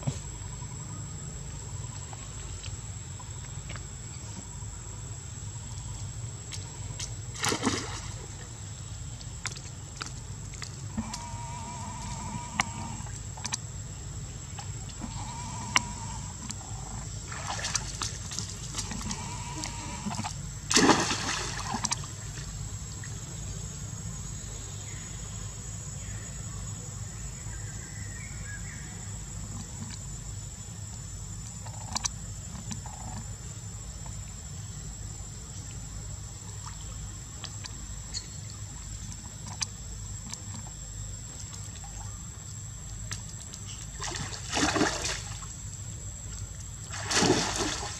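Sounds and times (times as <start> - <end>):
low background hum: 0.0 - 47.9
monkey splashing into pool: 7.4 - 8.3, 20.7 - 22.1, 44.0 - 45.4, 46.9 - 47.9
water movement from swimming: 43.2 - 45.7, 46.4 - 47.9.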